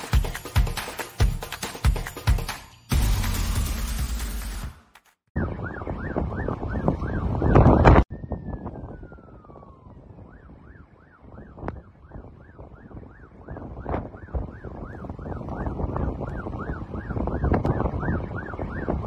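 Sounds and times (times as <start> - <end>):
rising and falling siren: 5.3 - 19.0
wind: 5.3 - 19.0.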